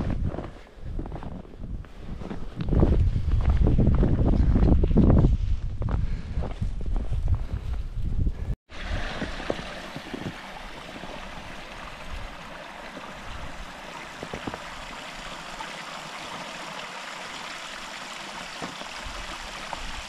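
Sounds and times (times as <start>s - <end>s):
stream water rushing: 8.7s - 20.0s.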